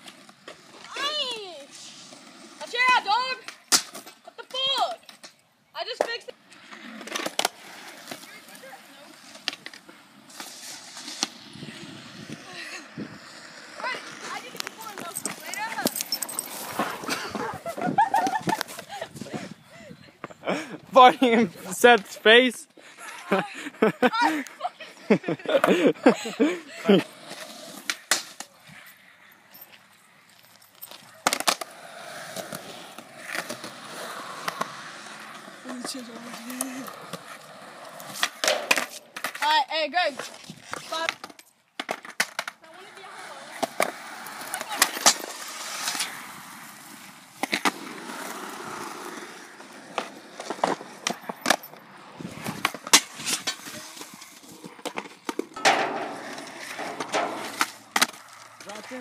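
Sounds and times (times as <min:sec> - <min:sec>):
skateboard wheels rolling on concrete: 0:00.0 - 0:59.0
skateboard clacks: 0:30.9 - 0:46.3, 0:47.4 - 0:59.0.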